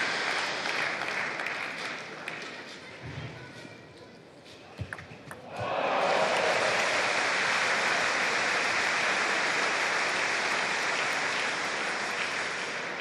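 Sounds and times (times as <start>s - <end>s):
spectators applauding: 0.0s - 2.7s, 5.5s - 13.0s.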